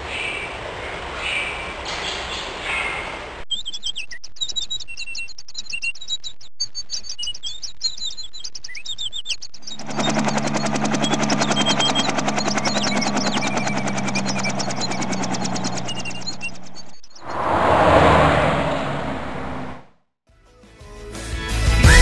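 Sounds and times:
birds chirping and singing: 1.3 - 17.3
helicopter engine hum: 9.6 - 17.6
helicopter rotor chopping: 9.6 - 17.8.

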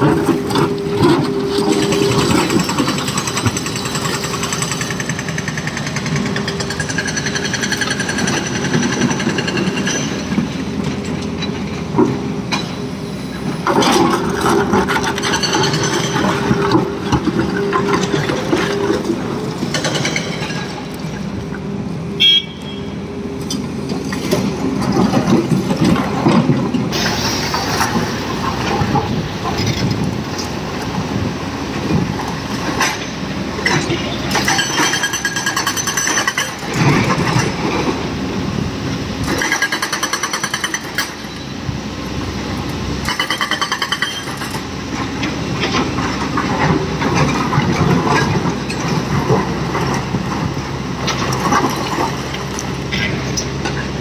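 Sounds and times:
heavy diesel machinery running: 0.0 - 54.0.

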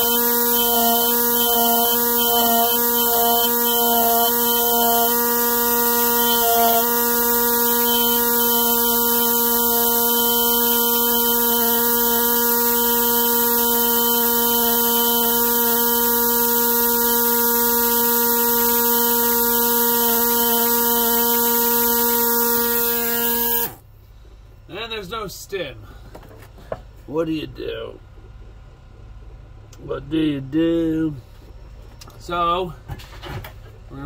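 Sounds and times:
scribe tool buzzing on rock: 0.0 - 23.8.

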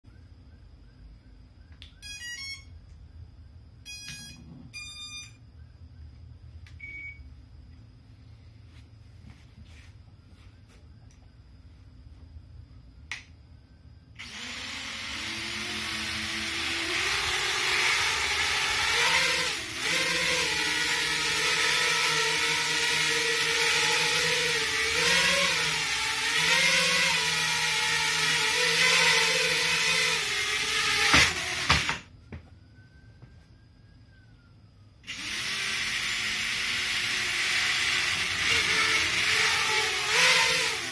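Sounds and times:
electronic beeps: 1.7 - 3.2, 3.8 - 5.7, 6.8 - 7.3
quadcopter propellers whirring: 14.2 - 32.0, 35.0 - 40.9.

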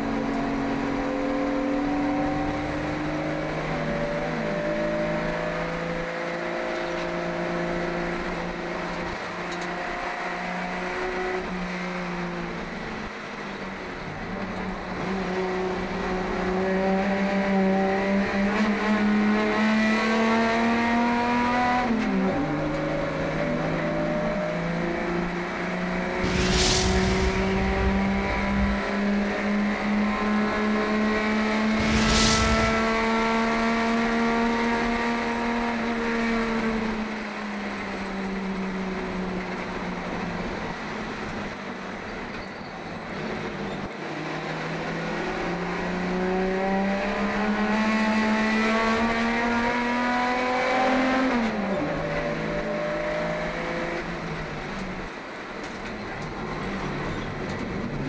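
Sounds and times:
short bursts of rushing noise: 26.1 - 29.5, 31.6 - 33.9.

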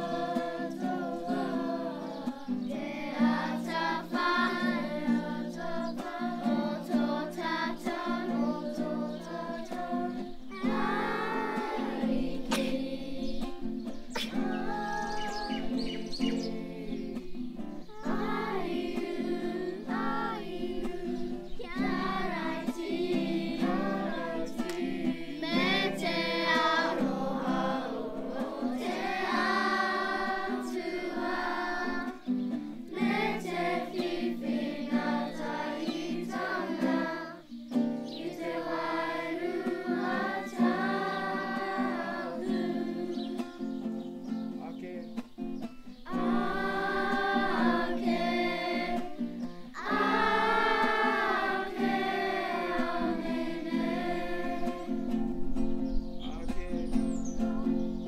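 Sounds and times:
children singing together: 0.0 - 44.4, 46.0 - 55.9
strummed acoustic guitar: 0.0 - 58.0.

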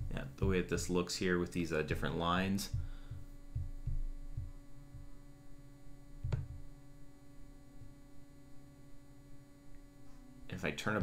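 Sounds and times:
soft low bumps: 0.0 - 1.0, 1.9 - 5.3, 6.1 - 6.8
low electrical hum: 0.0 - 11.0.

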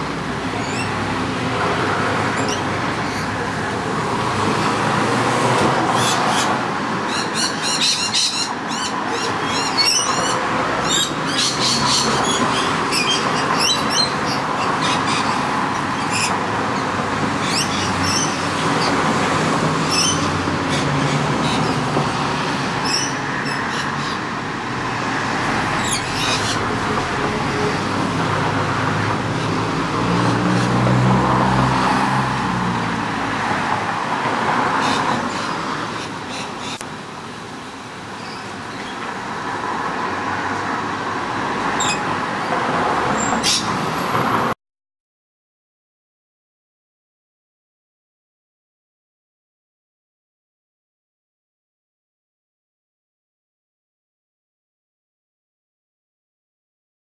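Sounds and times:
urban traffic noise: 0.0 - 44.6
lorikeets screeching chirps: 0.6 - 1.1, 2.2 - 3.4, 5.9 - 19.1, 19.8 - 21.8, 22.4 - 24.4, 25.7 - 26.9, 34.8 - 36.8, 41.8 - 42.1, 43.2 - 43.9.

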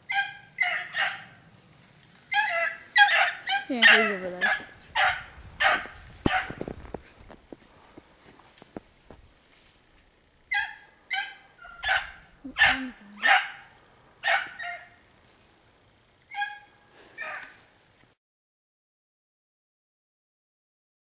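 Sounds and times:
puppies yelping: 0.0 - 1.3, 2.3 - 6.7, 10.5 - 15.0, 16.3 - 17.5.

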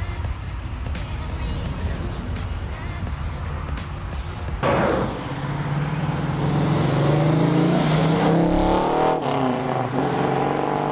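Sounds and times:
car engine accelerating: 4.6 - 10.9.

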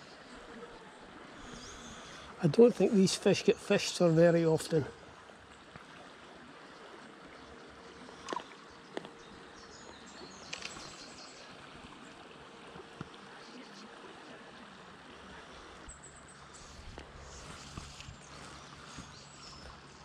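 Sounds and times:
stream flowing over stones: 0.0 - 20.0
faint sharp clicks: 10.4 - 11.0.

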